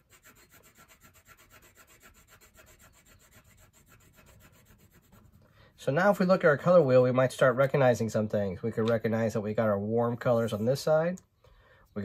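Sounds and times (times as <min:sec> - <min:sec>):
marker scribbling on paper: 0:00.0 - 0:05.4.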